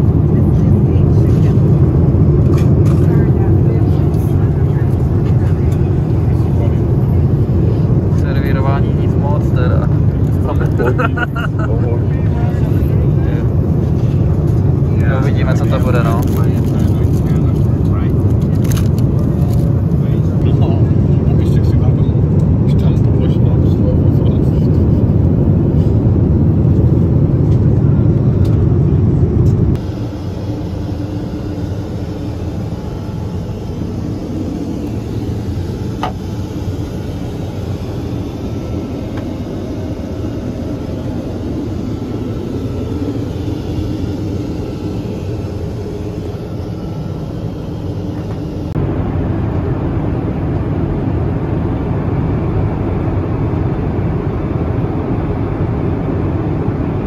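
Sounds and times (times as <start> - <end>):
airliner cabin engine rumble: 0.0 - 57.0.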